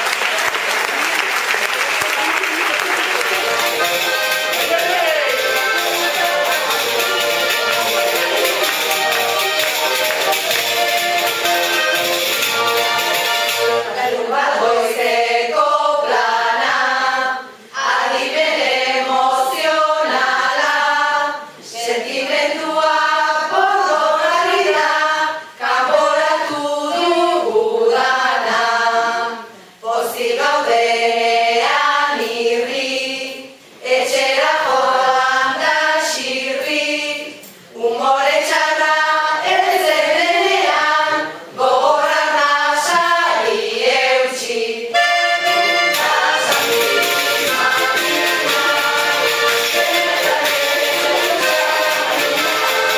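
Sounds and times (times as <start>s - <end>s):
group of voices singing: 3.2s - 52.9s.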